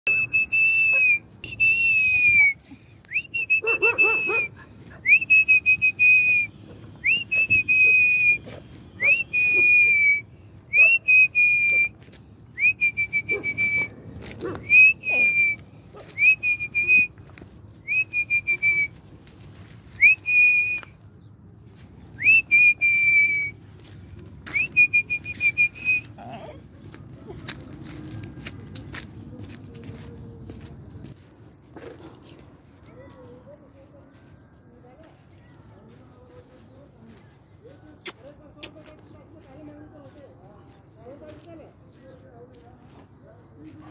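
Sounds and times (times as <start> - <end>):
man whistling: 0.1 - 4.5, 5.1 - 12.0, 12.6 - 13.9, 14.6 - 15.6, 16.2 - 17.1, 17.9 - 18.9, 20.0 - 20.9, 22.2 - 23.6, 24.5 - 26.2.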